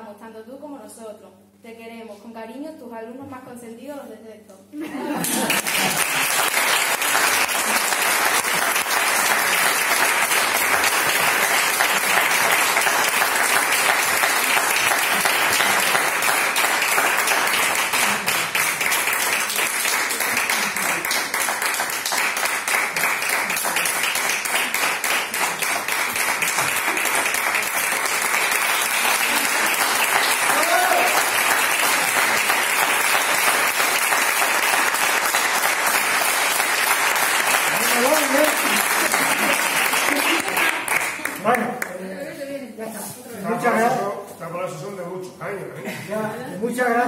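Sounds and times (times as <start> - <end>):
audience applauding: 5.2 - 42.0.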